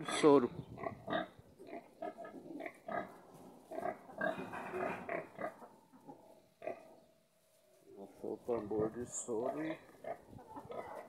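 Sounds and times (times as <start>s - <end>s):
young pigs grunting: 0.0s - 7.1s, 9.3s - 11.0s.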